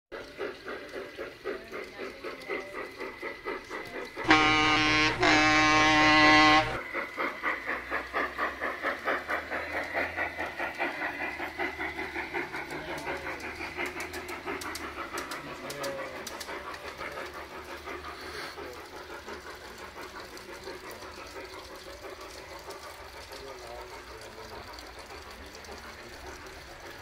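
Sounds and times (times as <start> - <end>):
model locomotive chuffing: 0.1 - 27.0
model steam whistle blast: 4.2 - 6.8.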